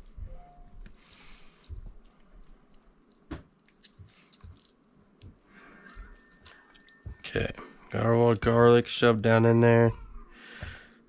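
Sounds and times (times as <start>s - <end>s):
wet squishing of hands in meat: 0.0s - 8.8s.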